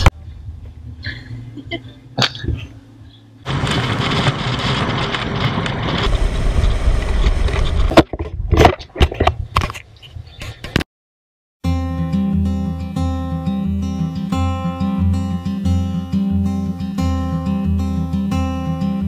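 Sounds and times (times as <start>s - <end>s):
road noise rumble: 0.0s - 10.8s
wind buffeting microphone: 3.5s - 9.6s.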